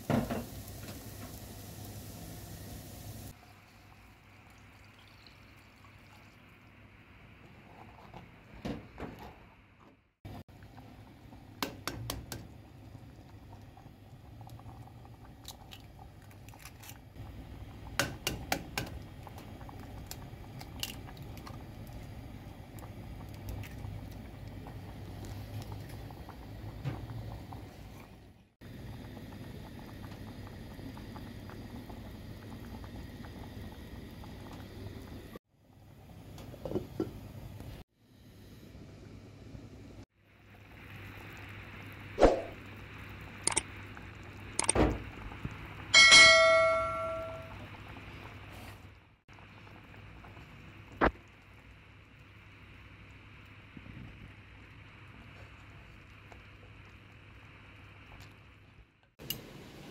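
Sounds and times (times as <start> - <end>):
water pouring into clay pot: 3.3 - 6.4.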